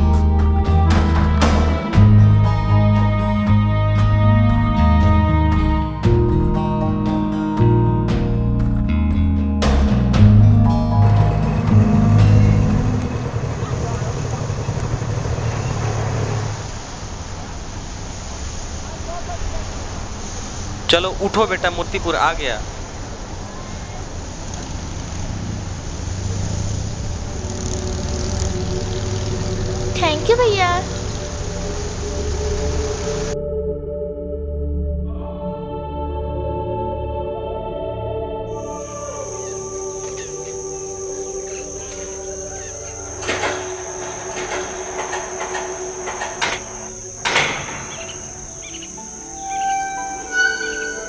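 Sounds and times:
auto-rickshaw engine idling: 0:10.2 - 0:16.9, 0:23.2 - 0:33.4, 0:38.5 - 0:51.0
steady higher tones: 0:10.4 - 0:16.8, 0:38.5 - 0:51.0
metal gate bolt scraping and clanking: 0:41.5 - 0:51.0.

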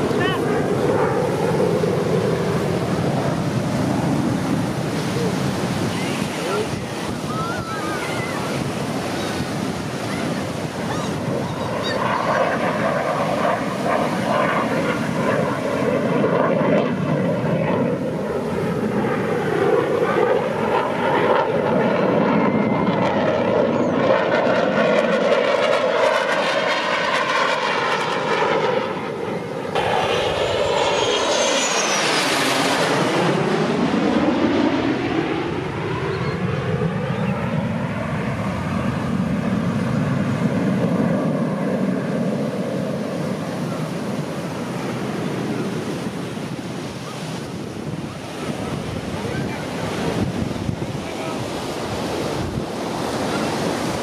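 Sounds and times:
jet whooshing overhead: 0:00.0 - 0:54.0
jets flying past: 0:00.0 - 0:54.0.

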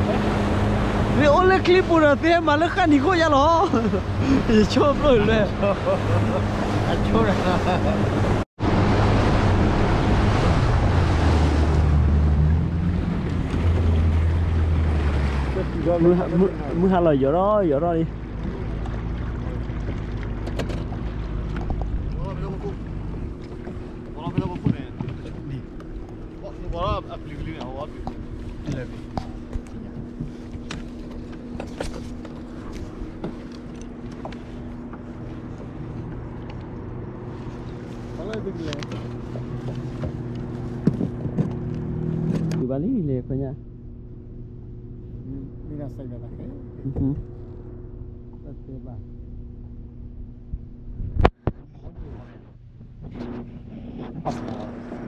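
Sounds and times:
water rushing past hull: 0:00.0 - 0:42.7
boat engine drone: 0:00.0 - 0:55.0.

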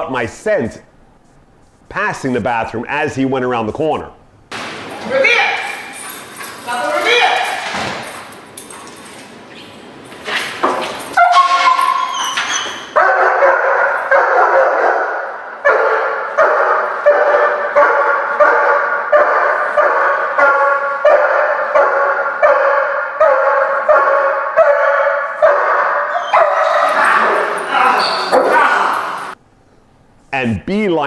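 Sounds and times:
dog barking: 0:12.9 - 0:29.4.

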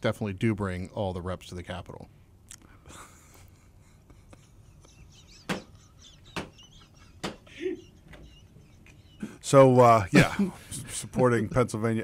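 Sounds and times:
low chuckle: 0:02.9 - 0:09.5.

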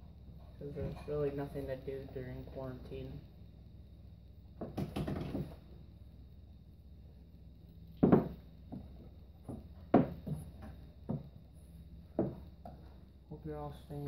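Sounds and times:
pool balls knocking: 0:04.6 - 0:05.7, 0:08.0 - 0:11.4, 0:12.0 - 0:12.9.

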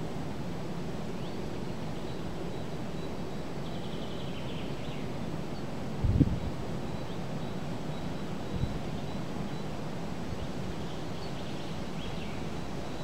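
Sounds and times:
wind through trees and reeds: 0:00.0 - 0:13.0
wind gust buffeting microphone: 0:06.0 - 0:06.5.

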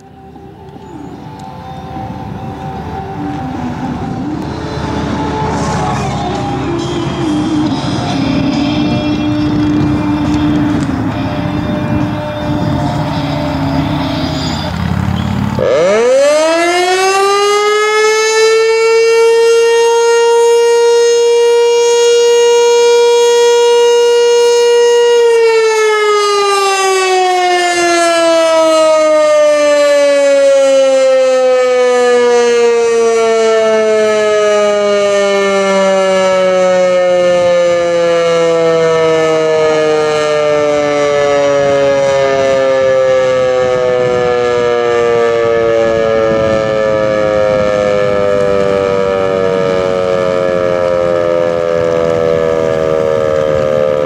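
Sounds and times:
warning siren winding: 0:09.4 - 0:54.0.

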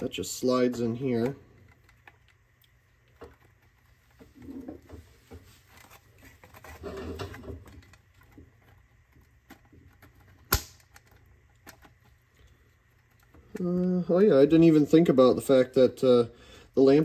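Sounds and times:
plastic and metal rubbing and knocking: 0:03.1 - 0:12.2
sharp plastic click: 0:10.4 - 0:11.1.

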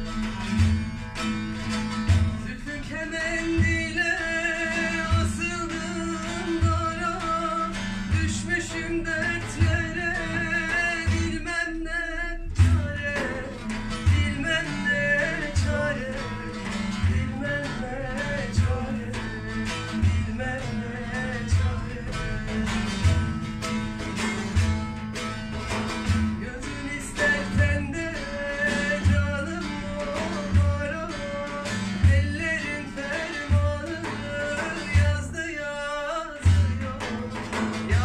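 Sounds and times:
plucked long-necked lute: 0:00.0 - 0:38.0
frame drum beat: 0:12.5 - 0:35.5, 0:36.4 - 0:38.0.

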